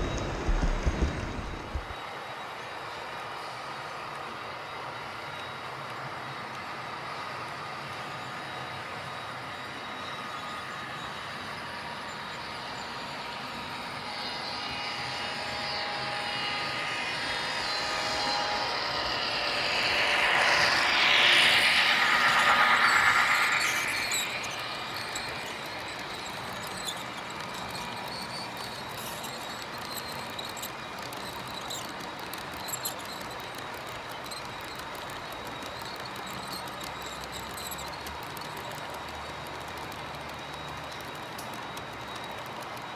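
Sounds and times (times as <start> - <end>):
model diesel locomotive passing: 0.0 - 5.2, 12.6 - 28.8.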